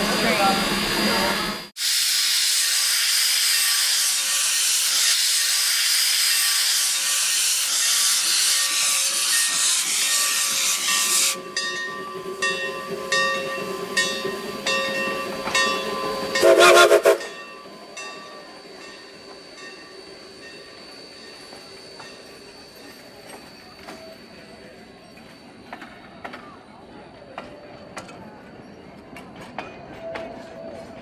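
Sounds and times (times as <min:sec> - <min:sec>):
steam hissing: 0:00.0 - 0:24.4
steam locomotive chuffing: 0:00.0 - 0:31.0
train whistle blast: 0:16.4 - 0:17.4.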